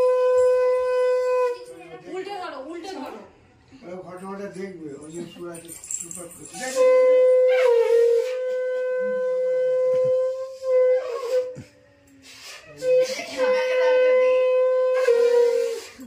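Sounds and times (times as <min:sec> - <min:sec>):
conch shell blasts: 0:00.0 - 0:01.8.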